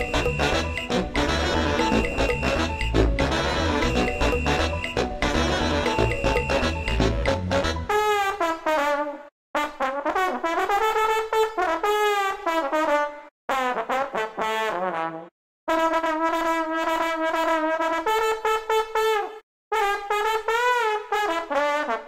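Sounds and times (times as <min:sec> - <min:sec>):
brass salsa music: 0:00.0 - 0:22.0.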